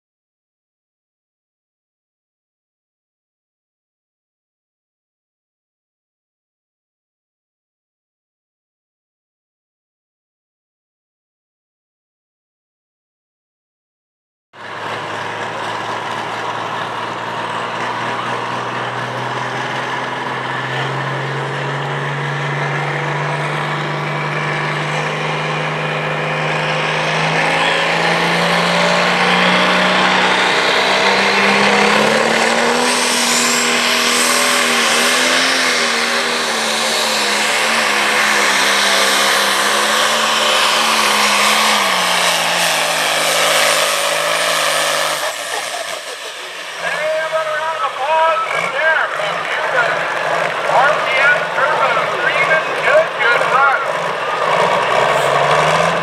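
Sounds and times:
high rising whine: 14.6s - 56.0s
tractor engine revving: 14.6s - 56.0s.

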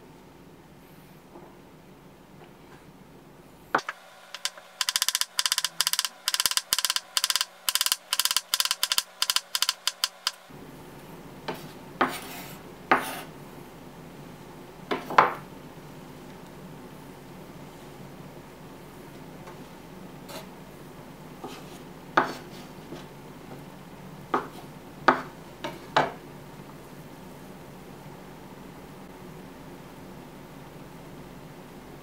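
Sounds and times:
knife chopping on wooden board: 11.5s - 13.2s, 22.2s - 22.4s, 24.4s - 25.4s.

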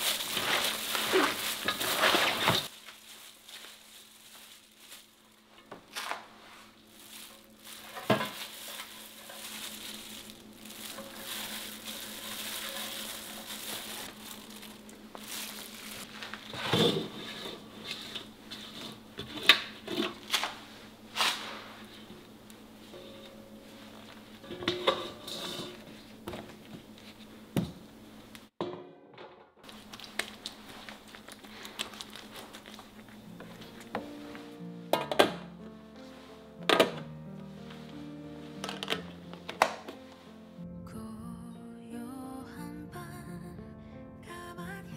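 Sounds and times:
wet rustling and squishing: 0.0s - 5.4s, 6.9s - 16.5s, 29.6s - 33.2s.

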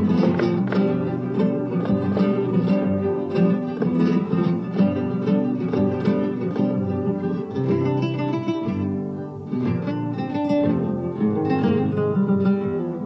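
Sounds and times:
flamenco guitar playing: 0.0s - 13.0s.

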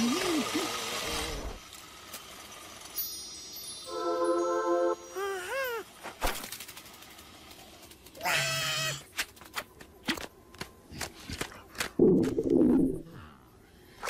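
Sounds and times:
squeaky cartoon cries: 5.1s - 5.9s, 8.2s - 9.1s
bleat-like cry: 8.2s - 9.0s.

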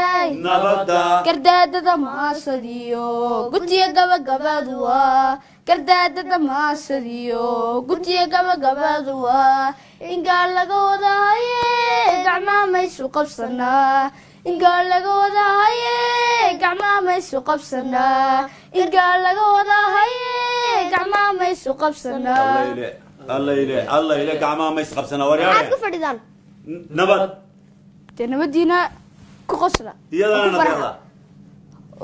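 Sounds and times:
girl singing: 0.0s - 0.4s, 1.2s - 22.8s.

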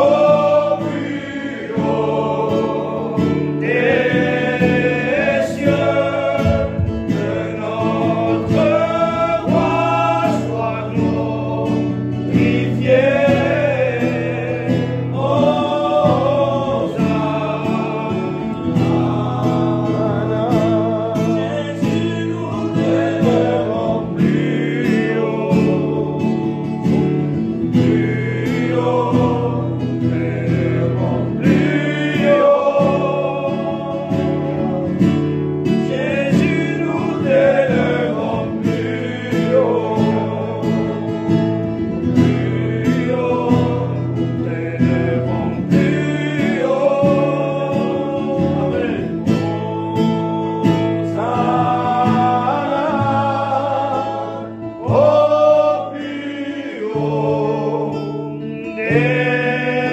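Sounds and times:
acoustic guitar chords: 0.0s - 59.9s
man singing a hymn: 0.0s - 59.9s.

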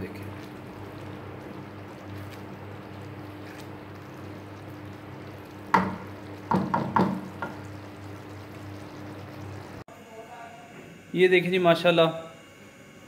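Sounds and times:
wooden spatula stirring in a pan: 0.2s - 7.9s
spatula knocking against pan: 5.7s - 7.6s.

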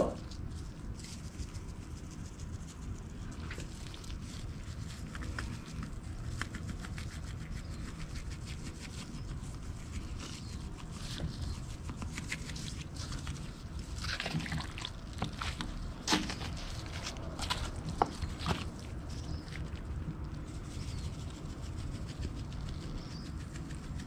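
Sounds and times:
steady low rumble: 0.0s - 24.0s
wet squishing and slapping of meat: 13.2s - 19.6s.

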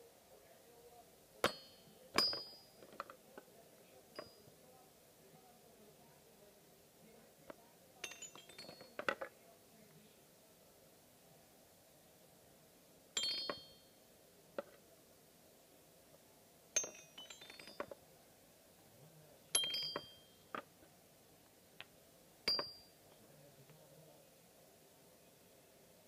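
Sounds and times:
toy xylophone strikes: 1.4s - 2.7s, 8.0s - 8.9s, 13.2s - 13.9s, 16.8s - 17.9s, 19.5s - 20.6s, 22.5s - 22.9s
ball rolling down xylophone keys: 13.2s - 13.8s, 19.6s - 20.5s.

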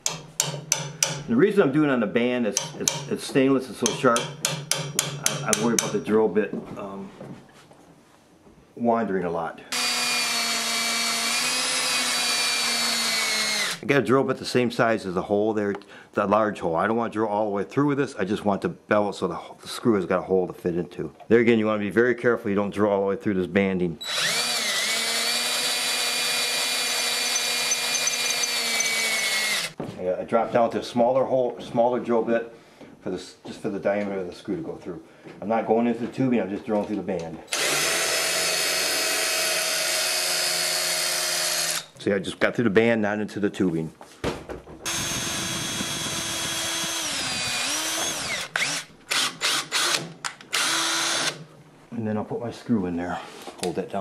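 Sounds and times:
cordless drill cutting steel: 9.7s - 13.8s, 24.0s - 29.8s, 37.5s - 42.0s, 44.9s - 51.4s.

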